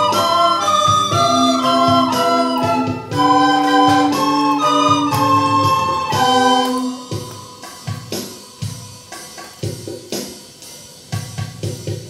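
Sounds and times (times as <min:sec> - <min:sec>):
recorder ensemble chord: 0:00.0 - 0:07.1
drum beat: 0:00.0 - 0:12.0.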